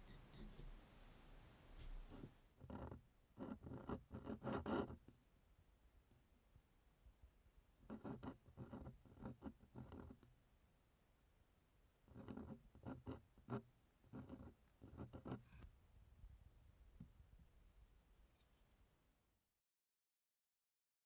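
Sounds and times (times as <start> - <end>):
pen nib scratching on paper: 0.0 - 0.7, 1.8 - 5.0, 7.8 - 10.2, 12.1 - 15.6.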